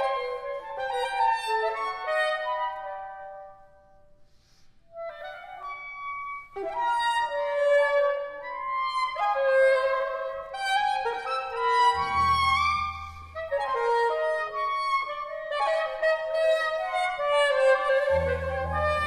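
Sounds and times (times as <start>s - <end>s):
soprano saxophone: 4.9s - 19.0s.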